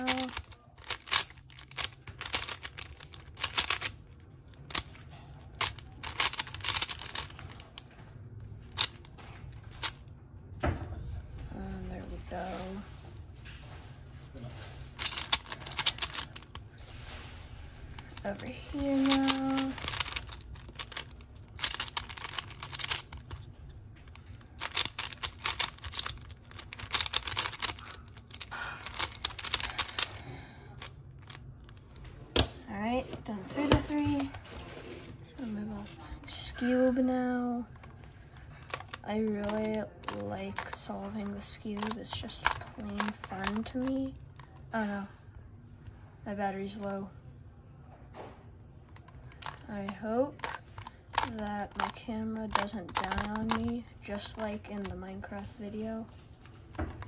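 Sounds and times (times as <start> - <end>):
puzzle cube layers clicking: 0.0 - 4.0, 5.6 - 7.7, 15.0 - 16.6, 18.0 - 23.5, 24.1 - 30.2.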